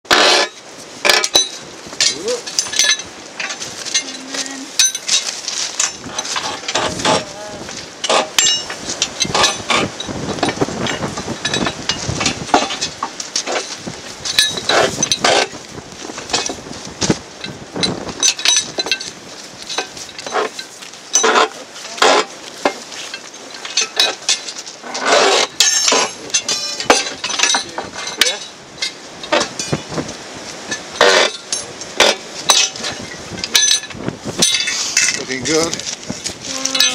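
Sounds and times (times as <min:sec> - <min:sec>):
metal rattling scrape: 0:00.1 - 0:07.3, 0:08.0 - 0:16.6, 0:19.7 - 0:29.8
steel bar clinking on rails: 0:00.1 - 0:07.3, 0:08.0 - 0:15.6, 0:16.2 - 0:16.6, 0:17.4 - 0:29.9, 0:30.7 - 0:35.8, 0:36.5 - 0:36.9
harsh metal scrape: 0:24.8 - 0:26.9
ringing metal strikes: 0:25.6 - 0:28.6
metal coupling clinking: 0:25.6 - 0:29.8.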